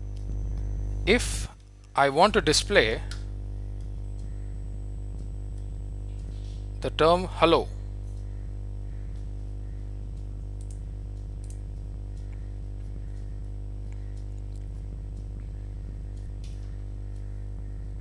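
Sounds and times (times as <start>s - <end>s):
low electrical hum: 0.0s - 18.0s
faint soft clicks: 10.1s - 15.5s.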